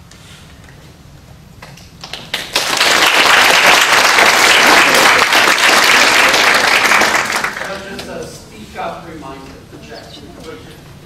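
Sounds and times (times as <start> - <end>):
audience applauding: 2.0 - 7.9.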